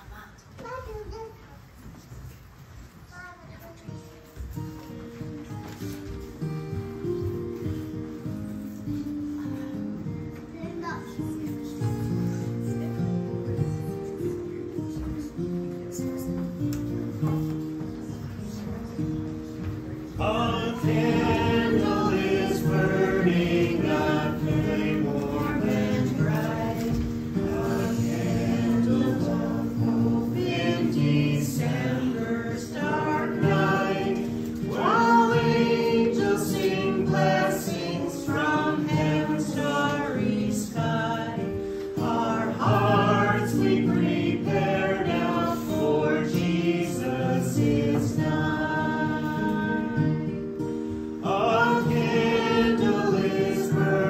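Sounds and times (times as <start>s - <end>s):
strummed acoustic guitar: 3.9s - 54.0s
voices singing a hymn: 18.5s - 54.0s.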